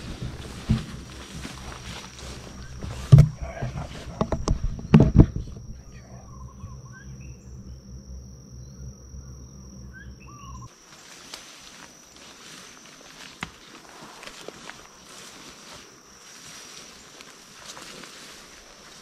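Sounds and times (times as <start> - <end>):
footsteps through brush: 0.0 - 6.4, 10.7 - 19.0
high insect drone: 0.0 - 19.0
faint bird chirps: 4.7 - 10.7.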